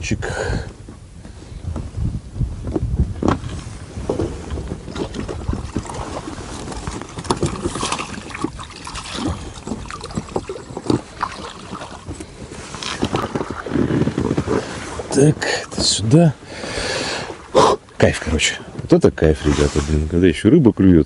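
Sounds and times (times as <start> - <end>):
small water splashes: 4.9 - 12.2.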